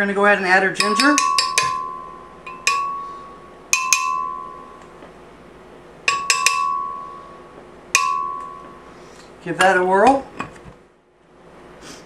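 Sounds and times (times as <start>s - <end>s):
spoon clinking on glass jar: 0.8s - 3.2s.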